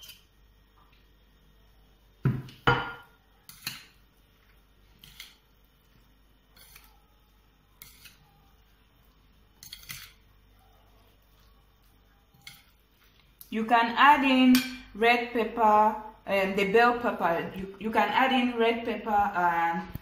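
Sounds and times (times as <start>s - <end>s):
dishware knocking on table: 2.3s - 3.1s.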